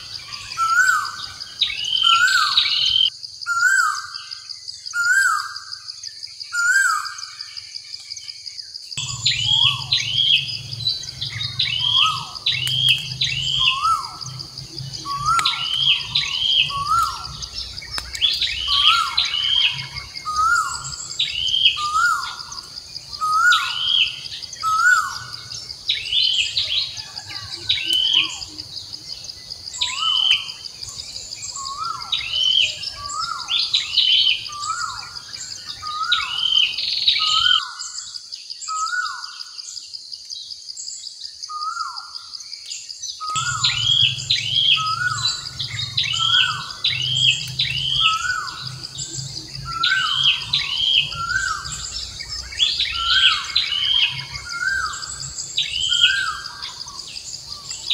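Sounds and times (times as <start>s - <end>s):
bird calling: 0.0s - 5.9s, 9.0s - 39.5s, 43.2s - 57.9s
high insect buzz: 43.2s - 57.9s.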